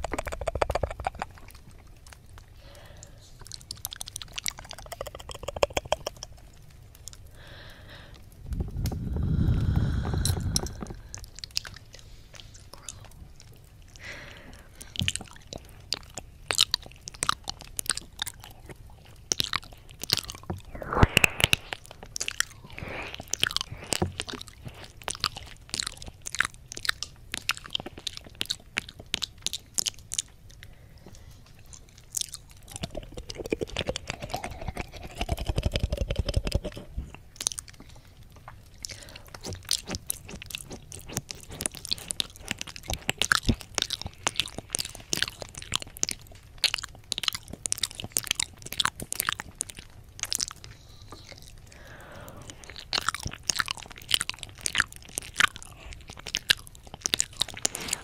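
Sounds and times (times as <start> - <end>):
wet mouth sounds: 0.0 - 58.0
muffled hum: 8.0 - 11.2.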